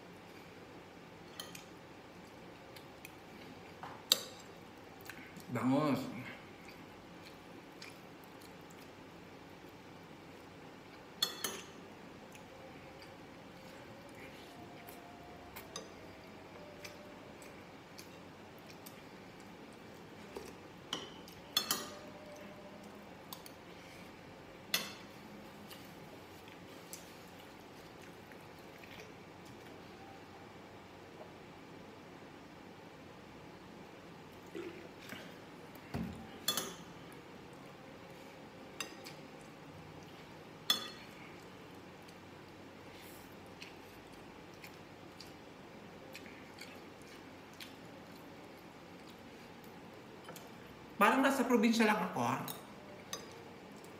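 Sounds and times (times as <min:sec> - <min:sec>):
cutlery clinking on glass dishes: 0:11.2 - 0:11.8, 0:20.9 - 0:22.1.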